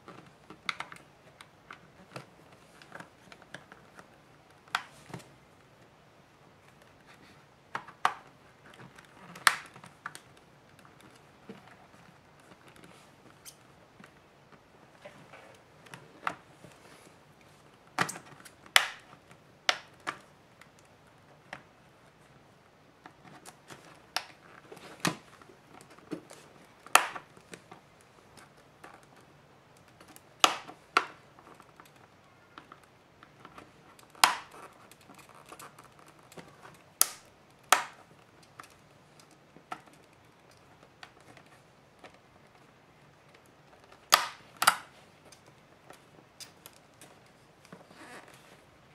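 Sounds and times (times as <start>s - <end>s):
plastic clips snapping: 7.7s - 11.2s, 18.0s - 20.9s, 26.8s - 27.7s, 29.8s - 32.0s, 32.6s - 42.6s, 43.3s - 47.2s.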